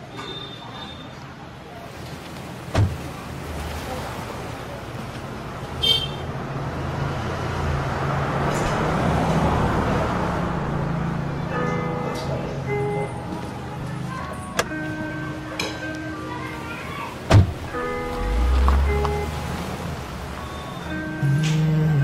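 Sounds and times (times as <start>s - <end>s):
rushing road noise: 1.2s - 22.0s
sharp thump: 2.7s - 3.0s, 17.3s - 17.6s
car engine hum: 17.1s - 22.0s.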